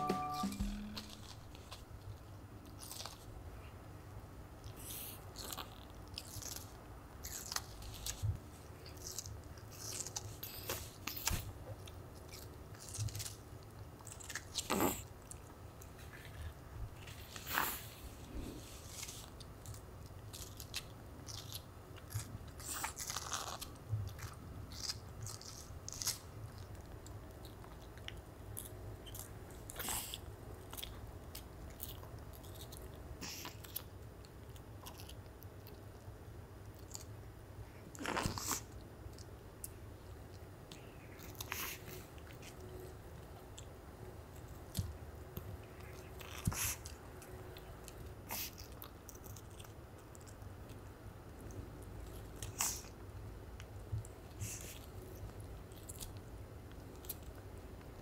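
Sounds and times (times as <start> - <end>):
dog chewing watermelon: 18.6 - 35.6, 41.2 - 50.8.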